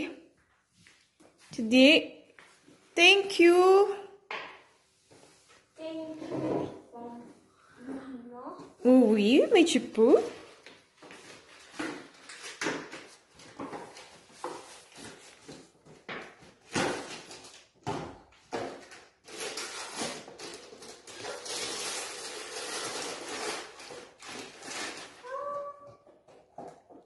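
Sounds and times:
wrapping paper rustling and tearing: 10.2s - 15.7s, 16.6s - 17.8s, 18.7s - 25.8s.

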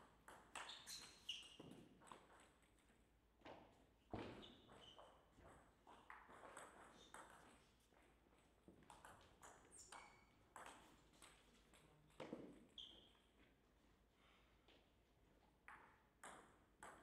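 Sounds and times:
short squeak: 0.6s - 1.6s
table tennis ball hits: 10.5s - 11.4s, 15.7s - 17.0s.

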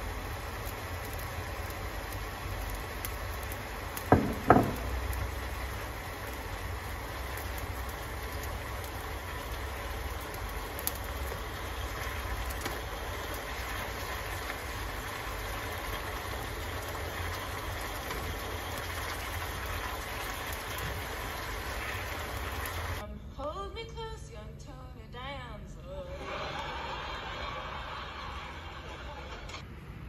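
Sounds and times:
food sizzling in a frying pan: 0.0s - 23.0s
wooden spatula knocks: 4.1s - 5.0s.

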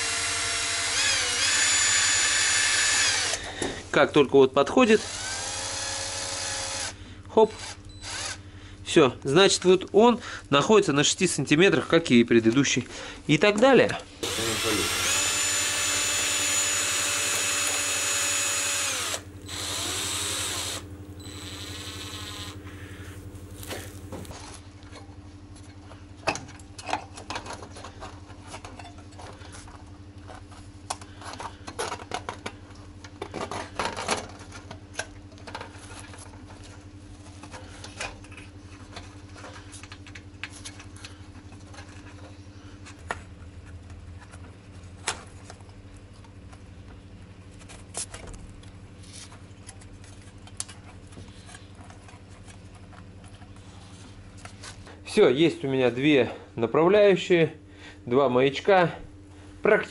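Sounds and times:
screwdriver motor whine: 0.0s - 3.4s, 8.0s - 8.4s, 14.2s - 24.4s
wire twisting rustling: 18.8s - 24.4s.

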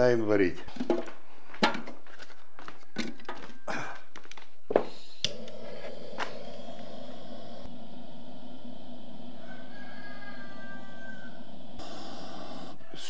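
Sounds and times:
knocks and thumps: 0.7s - 2.0s.

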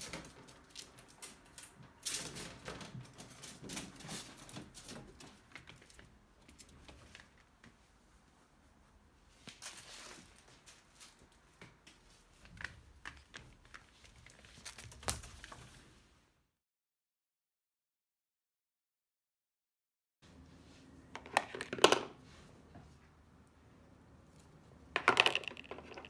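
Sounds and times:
ferrets rustling and clicking: 0.0s - 7.9s, 9.5s - 15.8s.

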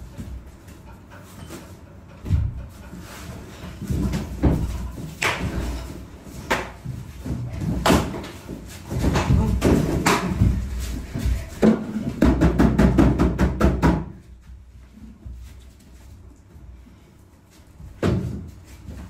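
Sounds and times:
people scrambling on hard floor: 0.0s - 19.0s
stick knocking and thumping: 2.2s - 14.3s.

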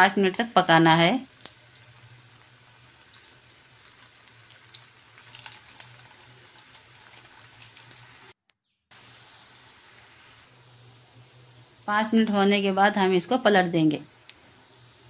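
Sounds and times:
food sizzling in oil: 0.0s - 15.0s
oil crackling and popping: 1.2s - 12.3s, 14.1s - 15.0s.

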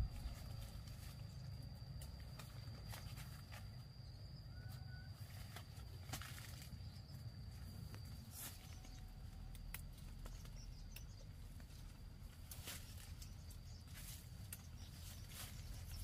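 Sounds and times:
low steady rumble: 0.0s - 4.6s.

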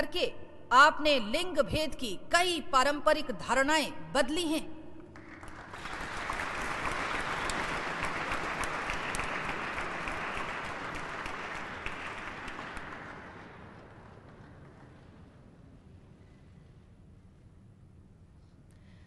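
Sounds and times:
audience applauding: 5.2s - 15.3s.

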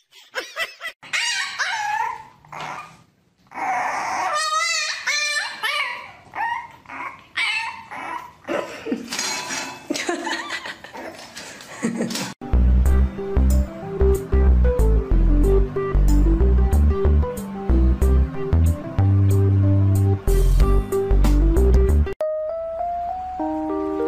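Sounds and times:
dogs whining and yipping: 1.0s - 8.7s.

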